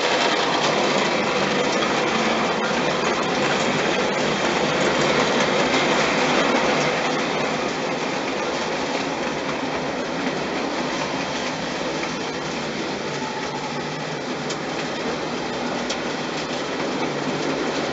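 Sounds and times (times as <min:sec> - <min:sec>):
model train wheels rolling on rails: 0:00.0 - 0:17.9.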